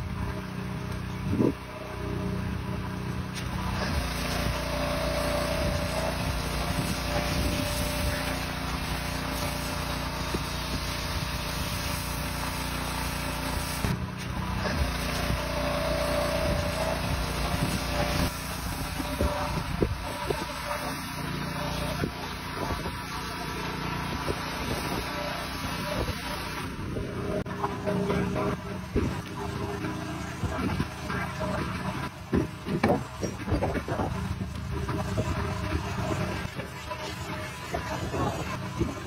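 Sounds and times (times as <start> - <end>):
pressure washer motor drone: 0.0 - 39.0
foam spray hissing: 3.4 - 26.7.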